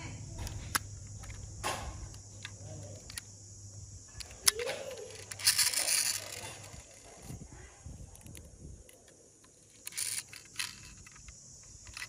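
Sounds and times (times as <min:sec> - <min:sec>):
toy car clicks: 0:04.2 - 0:07.4, 0:08.1 - 0:12.0.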